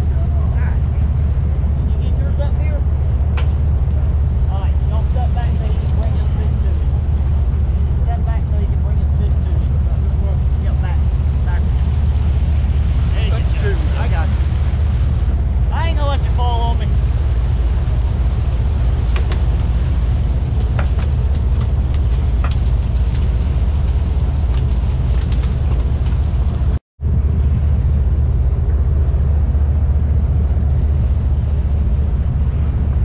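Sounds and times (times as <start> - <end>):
water rushing: 0.0 - 26.8
boat diesel engines droning: 0.0 - 33.0
wind: 0.0 - 33.0.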